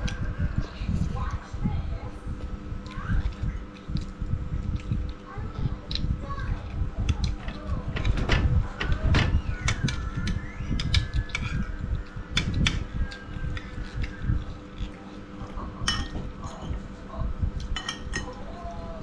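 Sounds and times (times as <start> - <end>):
fan hum: 0.0 - 19.0
person chewing and smacking: 2.4 - 7.4, 9.7 - 15.9
cutlery clicking on plate: 17.6 - 18.4.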